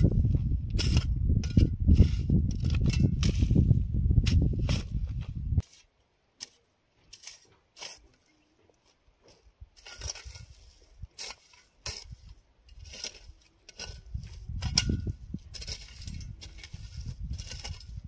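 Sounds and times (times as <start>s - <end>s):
hoe scraping stony soil: 0.0s - 18.0s.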